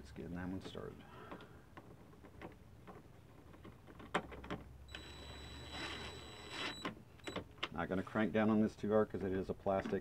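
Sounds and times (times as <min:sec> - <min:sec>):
cordless drill whirring: 0:04.9 - 0:07.4.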